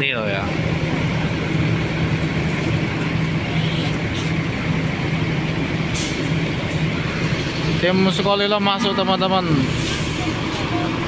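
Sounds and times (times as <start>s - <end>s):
bus diesel engine drone: 0.0s - 11.0s.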